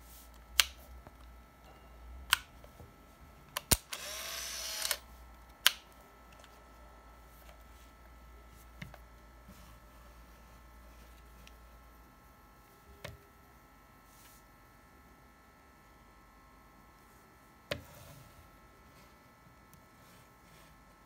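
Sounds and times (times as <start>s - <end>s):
camera mechanical clicks: 3.6s - 5.0s
camera shutter click: 3.7s - 5.0s
camera motor whirring: 3.7s - 5.1s.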